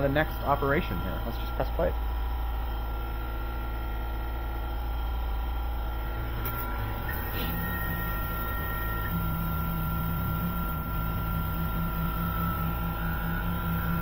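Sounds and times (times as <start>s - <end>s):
low hum: 0.0s - 14.0s
spindle whine: 0.0s - 14.0s.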